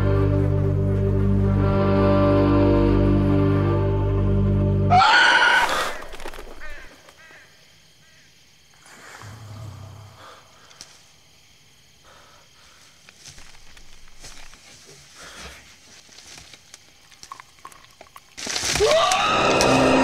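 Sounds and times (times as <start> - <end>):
rustling and crackling in brush: 5.6 - 7.2, 12.6 - 19.0.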